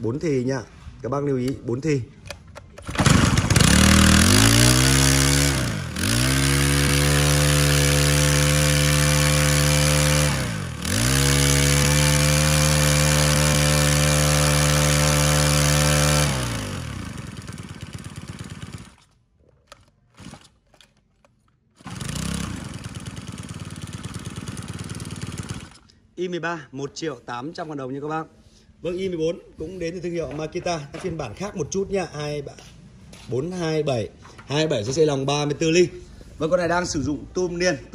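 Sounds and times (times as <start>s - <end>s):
brush cutter engine at high revs: 2.9s - 19.0s, 20.2s - 20.5s, 21.8s - 25.8s.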